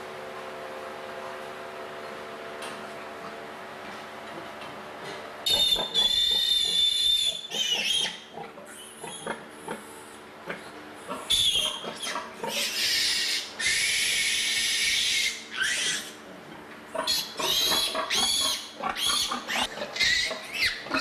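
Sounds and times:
steady low hum: 0.0s - 21.0s
piglets squealing: 5.5s - 9.9s, 11.1s - 16.2s, 17.0s - 21.0s.

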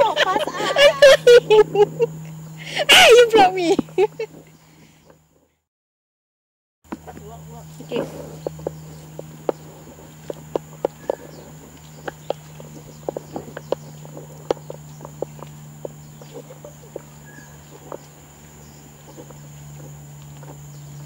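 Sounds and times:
high insect drone: 0.0s - 5.4s, 6.9s - 21.0s
low hum: 0.0s - 5.6s, 6.9s - 21.0s
footsteps on muddy dirt trail: 6.9s - 21.0s.

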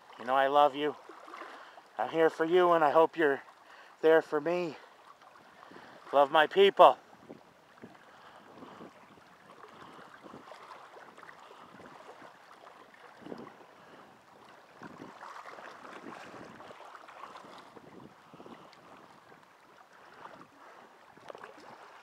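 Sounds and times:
river water lapping: 0.0s - 22.0s
wind on microphone: 7.0s - 22.0s.

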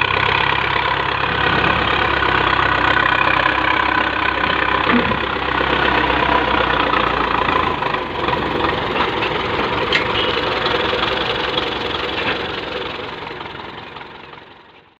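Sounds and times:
diesel tractor engine idling: 0.0s - 15.0s.

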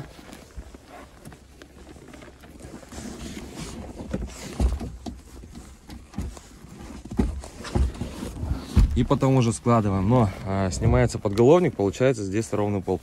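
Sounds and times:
seat fabric rustling: 0.0s - 13.0s
dull thumps: 3.9s - 11.5s.

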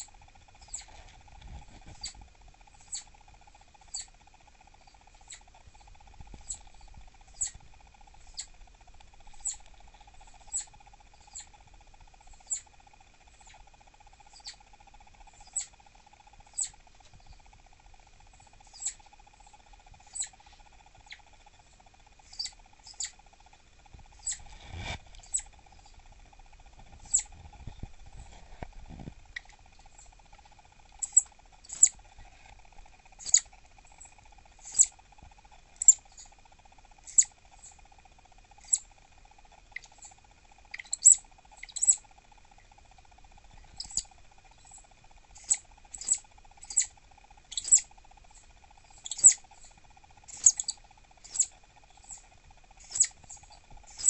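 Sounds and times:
faint steady hum: 0.0s - 54.0s
squirrel high-pitched chirps: 0.6s - 0.9s, 2.0s - 2.2s, 2.8s - 3.1s, 3.8s - 4.2s, 4.9s - 5.5s, 6.4s - 7.6s, 8.2s - 8.5s, 9.3s - 9.6s, 10.2s - 11.5s, 12.3s - 12.7s, 14.3s - 14.6s, 15.4s - 15.8s, 16.5s - 16.8s, 18.6s - 19.0s, 20.1s - 20.4s, 22.2s - 23.2s, 24.2s - 24.4s, 25.2s - 25.5s, 27.0s - 27.3s, 31.0s - 32.0s, 33.2s - 34.9s, 35.8s - 36.3s, 37.0s - 37.8s, 38.6s - 38.9s, 39.7s - 42.1s, 43.6s - 49.5s, 50.3s - 54.0s.

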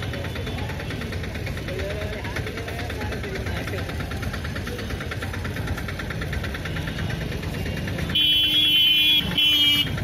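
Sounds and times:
street noise: 0.0s - 10.0s
vehicle engine rattling: 0.0s - 10.0s
vehicle horn honking: 8.1s - 10.0s.

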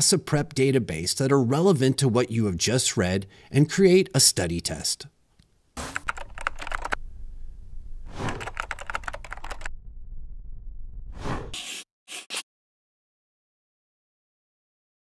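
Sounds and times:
low steady hum: 5.2s - 8.1s
keyboard key clicks: 5.8s - 7.0s, 8.3s - 9.7s.

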